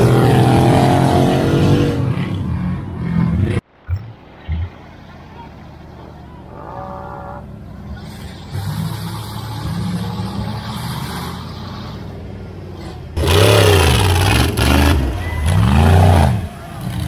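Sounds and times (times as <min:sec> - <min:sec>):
loud engine revving: 0:00.0 - 0:03.6, 0:08.5 - 0:11.9, 0:12.7 - 0:17.0.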